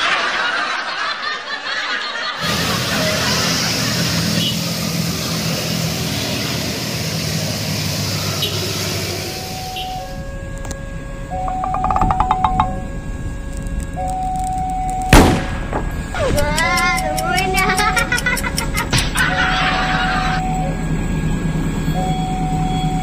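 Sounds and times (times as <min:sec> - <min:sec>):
rain hissing on wet street: 0:02.5 - 0:10.0.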